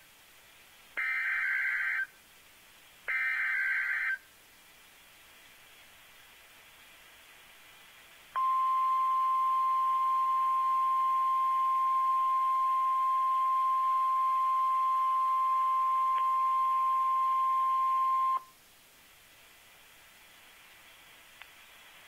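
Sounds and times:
faint radio hiss: 0.0 - 22.0
high-pitched warning beep: 8.4 - 18.4.

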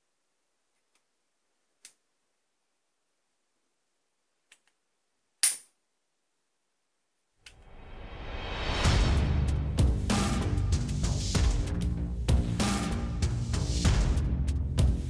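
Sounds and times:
rubber-band gun snap: 5.4 - 5.7.

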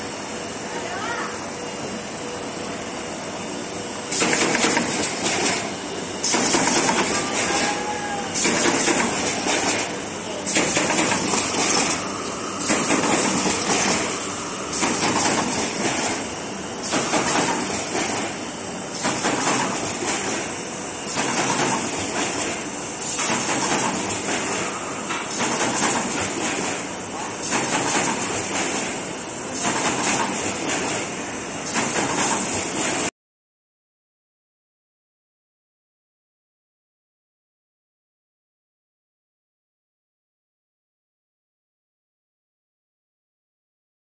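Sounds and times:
carton assembly machine running: 0.0 - 33.1.

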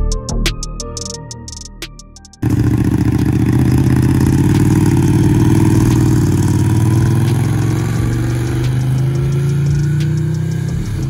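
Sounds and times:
motorcycle engine running: 2.4 - 11.0.

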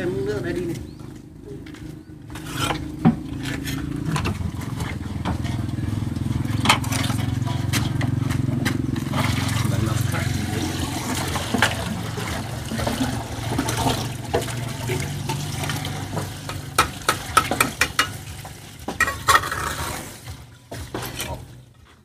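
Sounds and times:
water sloshing: 0.0 - 22.0
sharp knocks and taps: 16.4 - 18.2.

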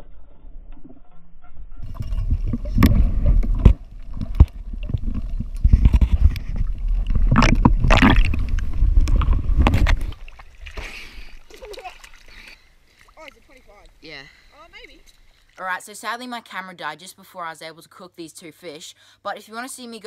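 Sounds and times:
muffled underwater rumble: 0.0 - 10.4
rush of water: 1.8 - 15.8.

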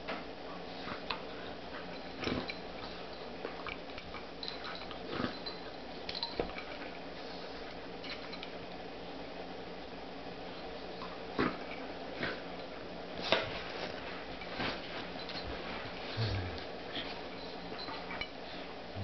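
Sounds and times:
faint steady hum: 0.0 - 19.0
dogs play-wrestling scuffles: 10.9 - 18.4.

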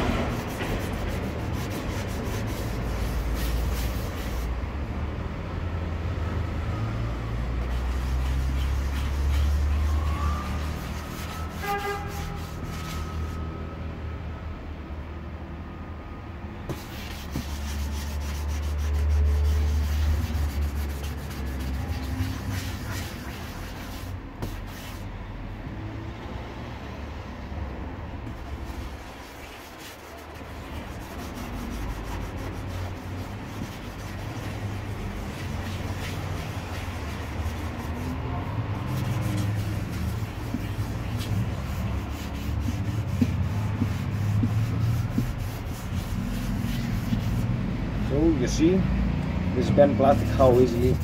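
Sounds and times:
sandpaper scrubbing plastic: 0.0 - 4.5, 7.6 - 13.4, 16.7 - 25.0, 28.3 - 47.6, 50.1 - 51.0.

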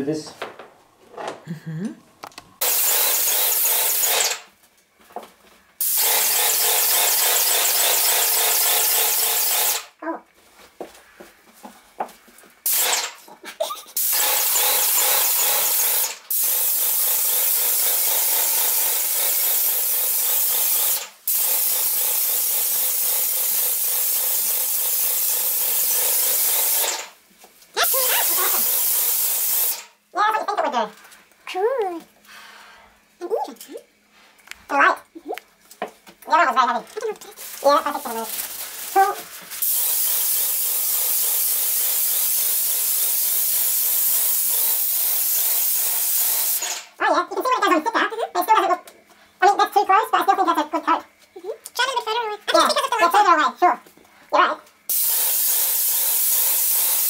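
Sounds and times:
paint sprayer spraying: 2.6 - 4.5, 5.8 - 10.0, 12.6 - 27.2, 27.8 - 30.0, 37.2 - 47.0, 54.9 - 57.0.

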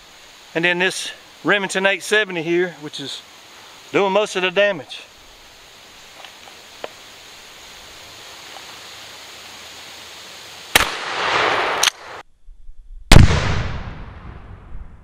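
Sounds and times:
shotgun blasts with echo: 10.7 - 11.9, 13.1 - 14.6.

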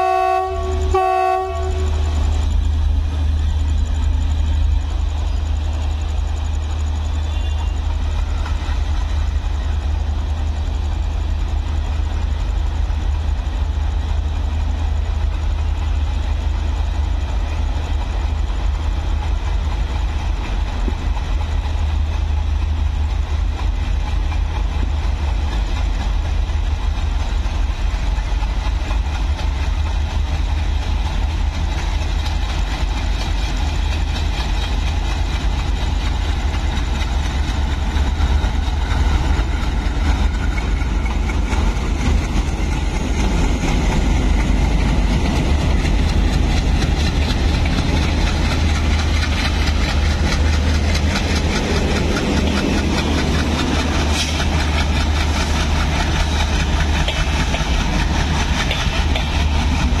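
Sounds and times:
diesel locomotive engines rumbling: 0.0 - 60.0.

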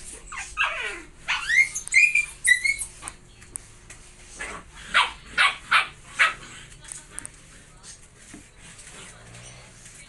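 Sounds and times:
puppy whining and yelping: 0.0 - 3.0.

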